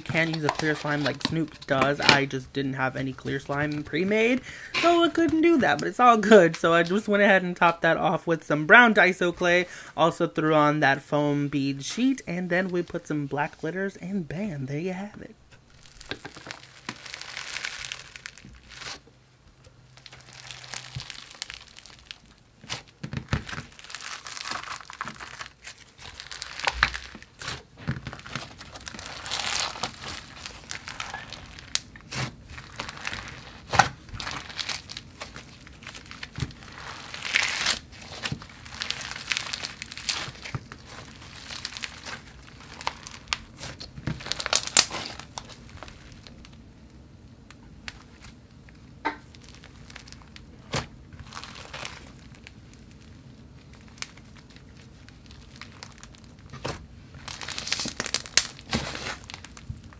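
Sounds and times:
foam beads crackling in slime: 15.7s - 19.0s, 19.8s - 46.6s, 49.2s - 59.9s.

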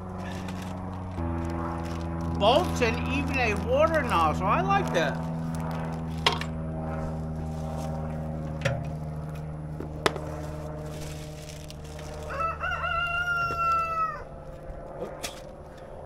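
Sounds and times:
steady low hum: 0.0s - 16.0s
rooster crowing: 12.0s - 14.4s.

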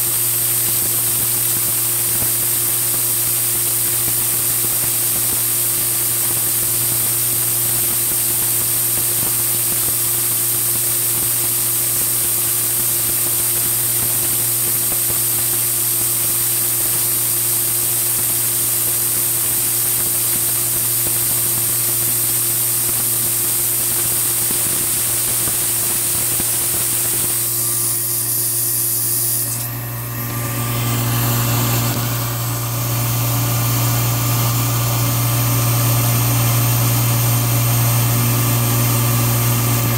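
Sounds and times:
milling machine hum: 19.6s - 39.9s
coolant nozzle spraying hiss: 22.0s - 29.8s.

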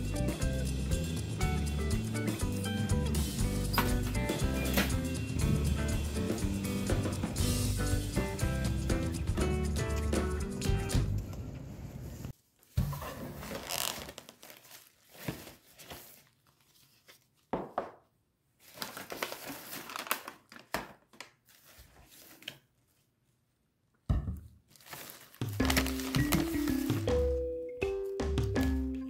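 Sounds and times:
plastic bag rustling and crinkling: 13.3s - 17.4s, 18.6s - 23.0s, 24.6s - 27.2s.

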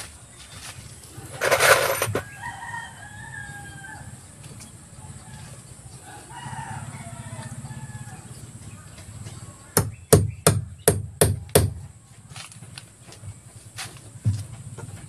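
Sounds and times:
rooster crowing: 1.5s - 4.2s, 5.1s - 8.4s.

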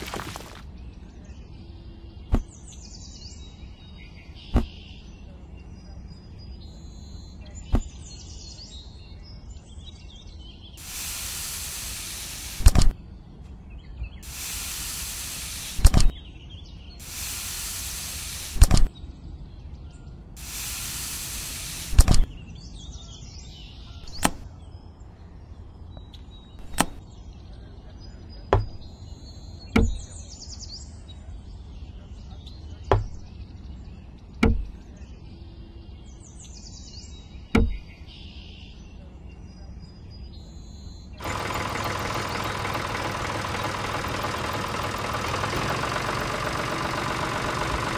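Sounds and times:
faint bird chirps: 0.0s - 47.9s
hiss of parts on sand: 10.8s - 12.8s, 14.2s - 16.1s, 17.0s - 18.8s, 20.4s - 22.3s
knocks and clicks of parts: 26.6s - 27.0s, 29.8s - 30.0s, 34.4s - 34.8s, 37.6s - 37.9s.

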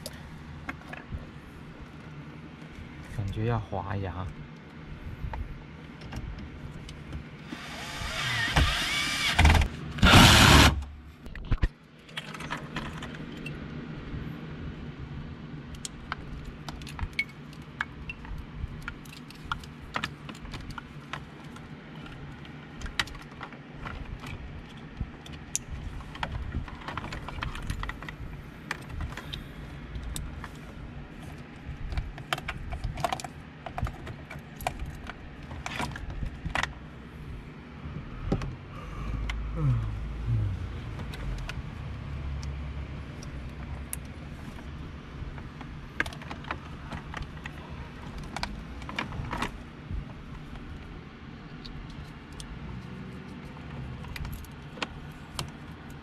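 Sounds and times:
cordless drill whirring: 7.5s - 10.8s.

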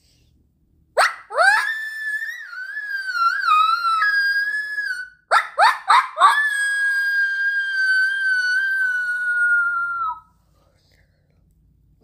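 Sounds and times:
person imitating coyote howl: 1.0s - 10.2s.

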